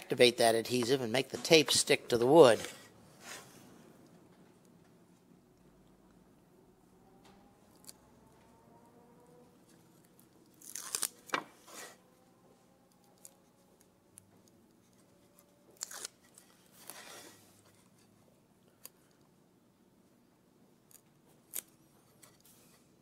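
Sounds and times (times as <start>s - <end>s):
knife scraping carpet tape: 15.8s - 17.5s.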